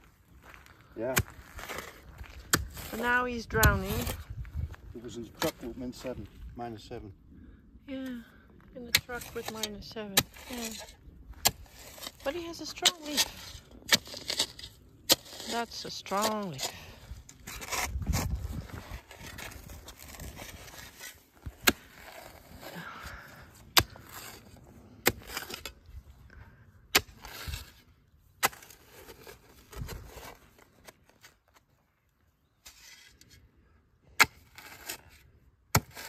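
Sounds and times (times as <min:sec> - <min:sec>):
spade scraping into soil: 0:08.9 - 0:22.8, 0:23.5 - 0:25.9, 0:26.9 - 0:31.7, 0:32.6 - 0:33.5, 0:34.2 - 0:36.0.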